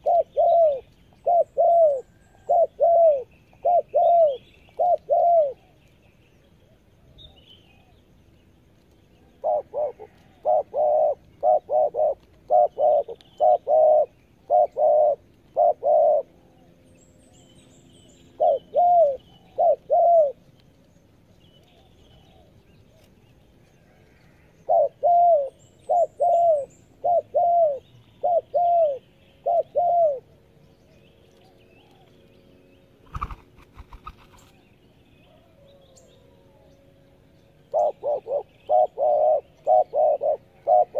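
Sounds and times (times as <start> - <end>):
dove cooing: 0.0 - 5.8, 9.4 - 16.7, 18.4 - 20.4, 23.9 - 30.3, 37.7 - 40.9.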